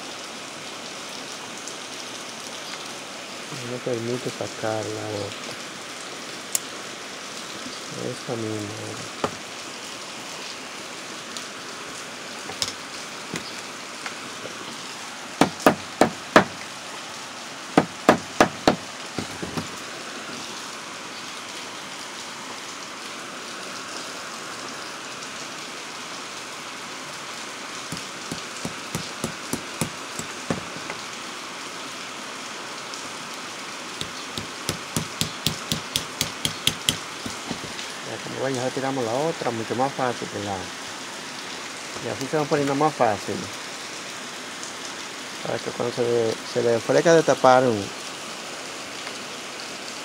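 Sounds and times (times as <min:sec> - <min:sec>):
hammer tapping on steel: 0:27.9 - 0:30.9, 0:34.0 - 0:37.8.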